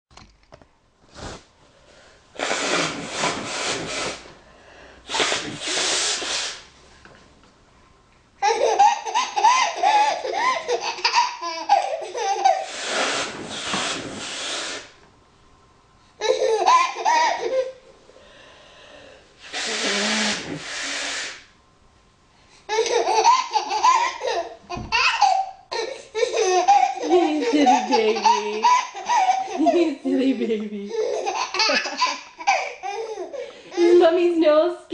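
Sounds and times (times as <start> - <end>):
woman blowing her nose: 2.3 - 4.4, 5.0 - 6.7, 12.5 - 15.0, 19.4 - 21.6
baby giggling: 8.4 - 12.8, 16.2 - 17.8, 22.7 - 34.0.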